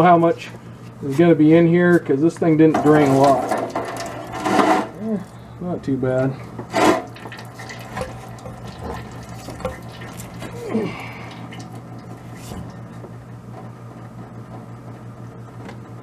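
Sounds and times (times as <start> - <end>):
steady low hum: 0.0 - 16.0
liquid draining and dripping: 2.8 - 5.4, 6.6 - 13.2.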